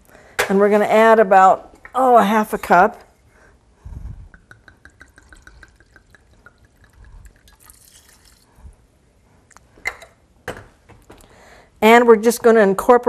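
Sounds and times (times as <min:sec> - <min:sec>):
faint liquid pouring: 0:04.4 - 0:08.6.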